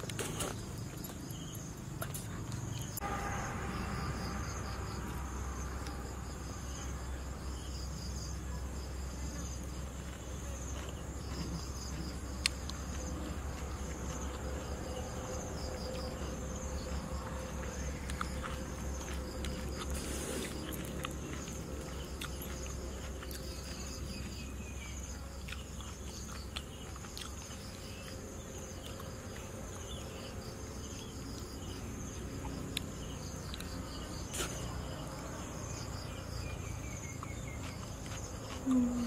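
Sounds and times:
insects chirping trills: 0:00.0 - 0:39.0
low steady rumble: 0:00.7 - 0:10.3.

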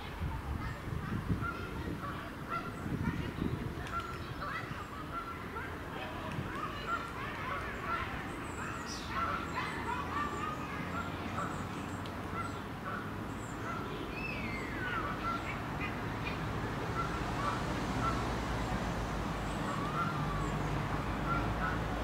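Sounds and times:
birds chirping: 0:06.5 - 0:18.8.

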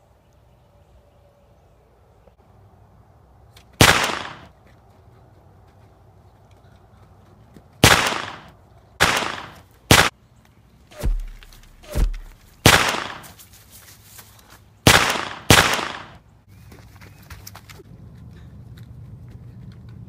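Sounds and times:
sharp gunshot-like bangs: 0:03.8 - 0:04.5, 0:07.8 - 0:10.1, 0:11.0 - 0:13.3, 0:14.8 - 0:16.2.

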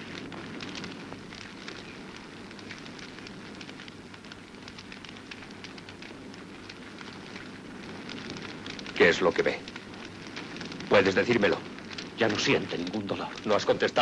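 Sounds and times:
wood fire crackling: 0:00.0 - 0:14.0.

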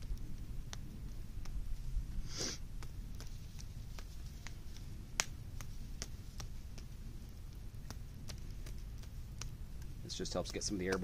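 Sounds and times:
clay patted between palms: 0:00.0 - 0:11.0
person sniffing: 0:02.2 - 0:02.7.

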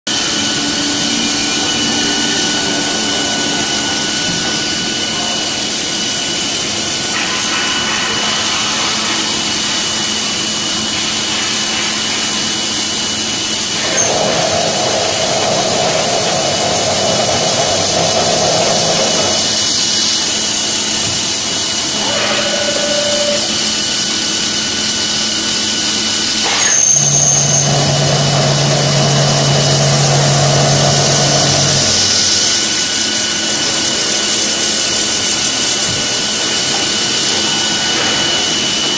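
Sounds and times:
drilling machine drilling steel: 0:00.1 - 0:38.9
deep hum: 0:27.0 - 0:32.6.

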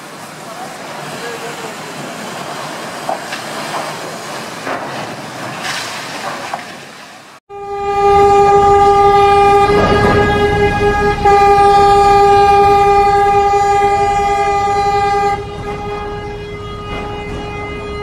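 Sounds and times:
ship collision noise: 0:00.0 - 0:18.0
ship's horn blast: 0:07.5 - 0:18.0.

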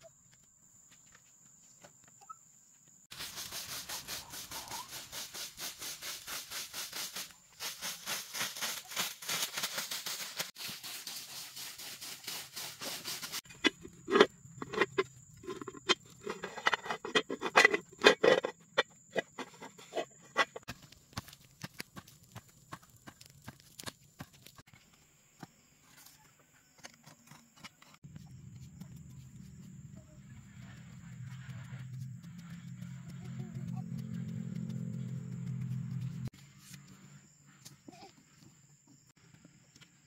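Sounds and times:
broom sweeping dry leaves: 0:03.1 - 0:13.5
knocks and clatters: 0:13.5 - 0:20.9.

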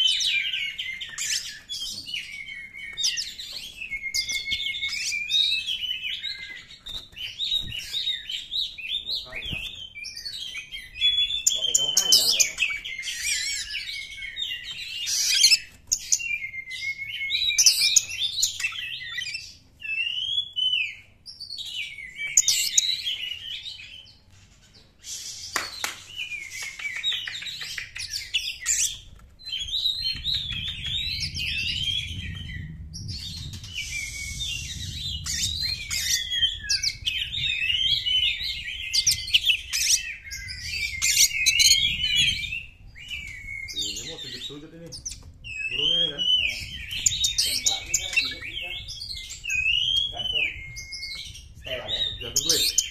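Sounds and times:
bird singing whistled song: 0:00.0 - 0:24.2, 0:25.0 - 0:52.9
low rumble: 0:30.0 - 0:37.8.

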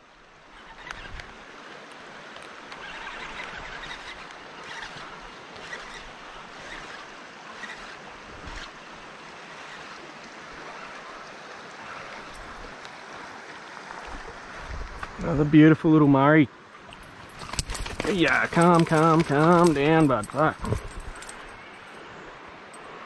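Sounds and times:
river water rushing: 0:00.0 - 0:23.0.

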